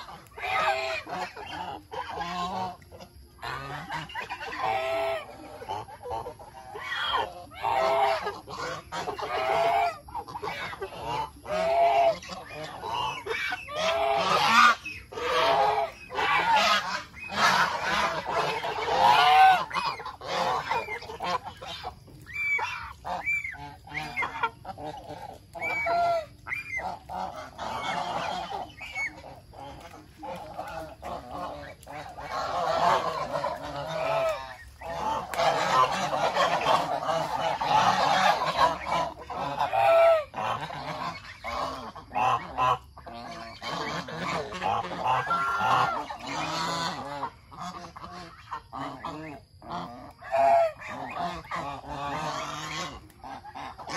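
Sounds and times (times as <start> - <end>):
geese honking: 0.0 - 53.9.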